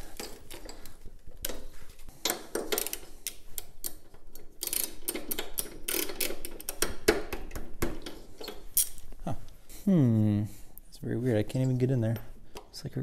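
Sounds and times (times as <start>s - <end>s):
socket ratchet clicking: 2.3s - 7.1s.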